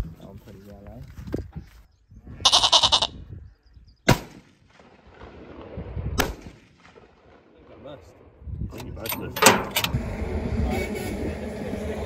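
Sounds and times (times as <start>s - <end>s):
goat-like bleat: 2.4s - 3.2s
rifle shot: 4.1s - 7.4s.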